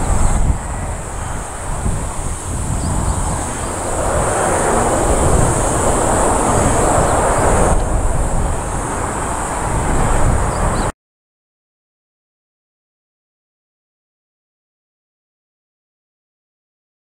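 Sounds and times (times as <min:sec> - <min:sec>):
distant jet engine rumble: 0:00.0 - 0:10.9.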